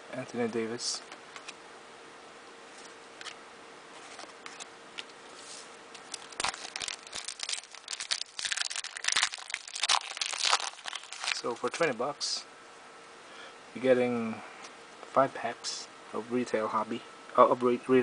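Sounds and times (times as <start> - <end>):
foil wrapper crinkling and tearing: 6.0 - 11.9.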